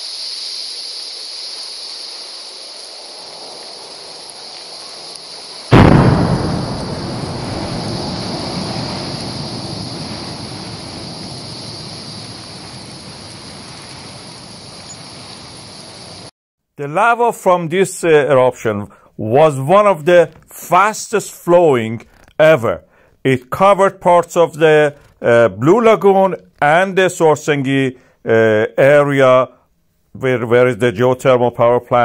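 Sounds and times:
steady hiss: 0.0 - 16.3
loud boom and low rumble: 5.7 - 16.0.

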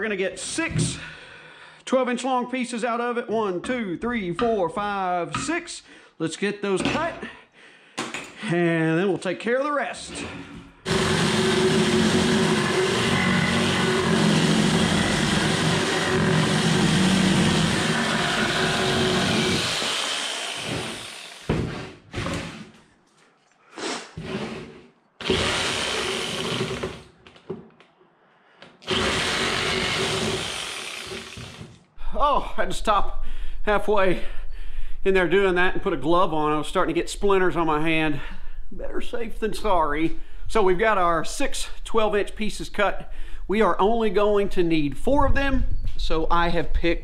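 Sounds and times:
reciprocating saw cutting wood: 10.1 - 22.7, 24.2 - 27.0, 28.8 - 31.8.

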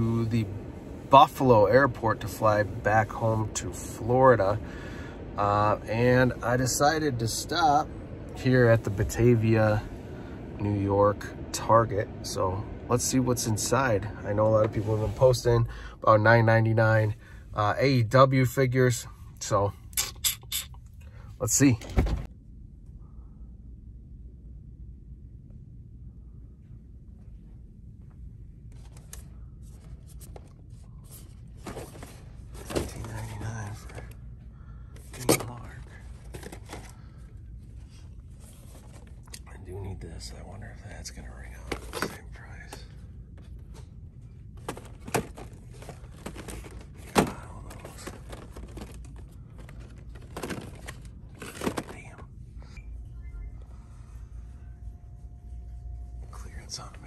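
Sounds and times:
low store hum: 0.0 - 57.0
plastic packages crinkling: 44.7 - 52.1.

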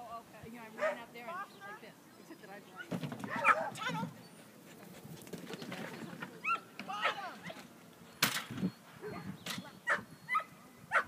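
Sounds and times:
dog barking and yipping: 3.3 - 3.8, 9.9 - 11.0.

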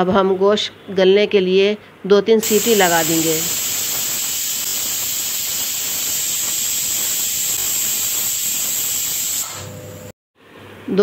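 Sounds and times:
pressure cooker whistling: 2.4 - 9.8.

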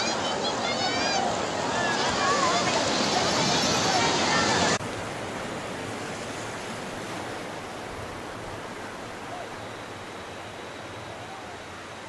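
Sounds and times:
surf washing over beach: 0.0 - 12.0.

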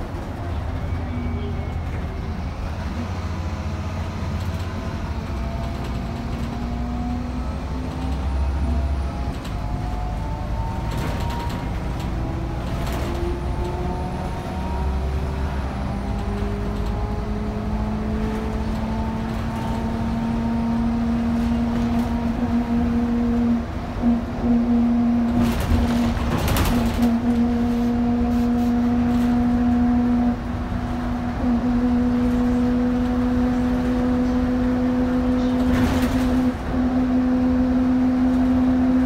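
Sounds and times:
bus engine rumble: 0.0 - 39.0.

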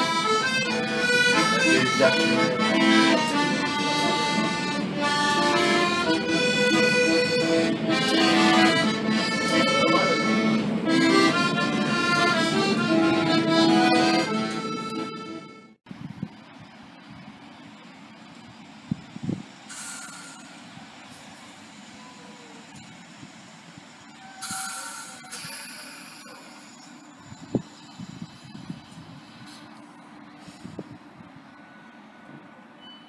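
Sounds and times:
accordion playing lively tune: 0.0 - 15.8.

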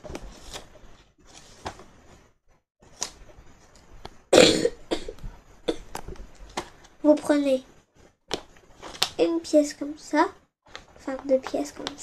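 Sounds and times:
person coughing: 4.3 - 5.9.

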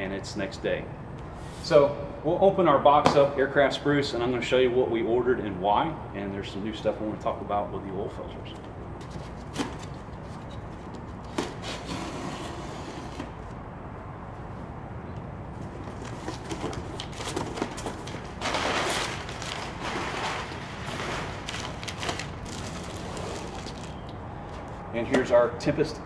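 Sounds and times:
cardboard box being opened: 15.8 - 24.0
packing paper rustling: 15.8 - 24.8.

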